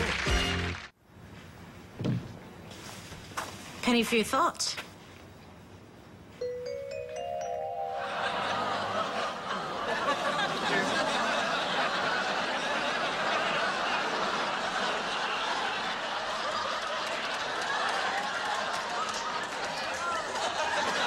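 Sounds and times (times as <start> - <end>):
rising chime run: 6.4 - 10.5
studio audience laughing: 7.8 - 21.0.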